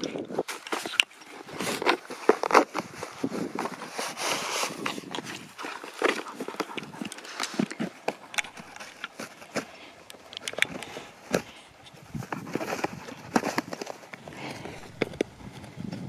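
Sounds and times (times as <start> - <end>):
dog chewing and tearing cardboard: 0.4 - 11.6, 12.2 - 15.3.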